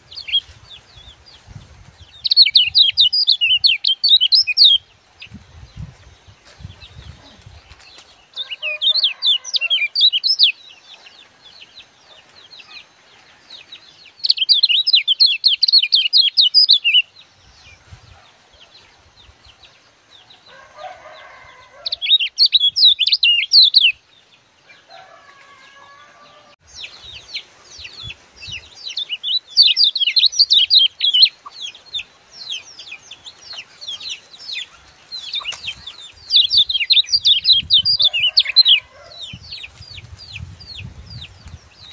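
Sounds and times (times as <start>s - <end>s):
bird chattering song: 2.1s - 18.2s, 21.9s - 24.0s, 26.8s - 41.9s.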